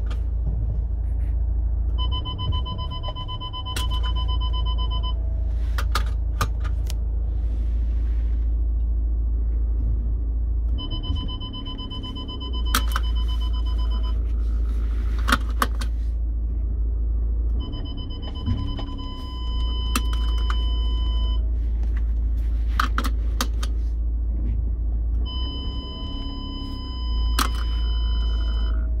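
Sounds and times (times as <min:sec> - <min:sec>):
engine idling: 0:00.0 - 0:29.0
parking brake motor whirr: 0:00.0 - 0:29.0
electronic warning chime tone: 0:10.8 - 0:14.2, 0:17.6 - 0:21.4, 0:25.3 - 0:28.8.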